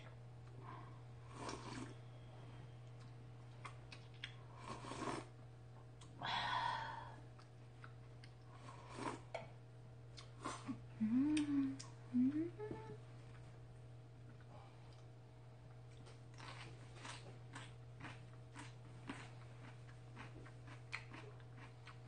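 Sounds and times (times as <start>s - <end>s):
slurping from a bowl: 1.2s - 2.0s, 4.5s - 5.3s, 8.6s - 9.3s
person humming: 10.9s - 13.0s.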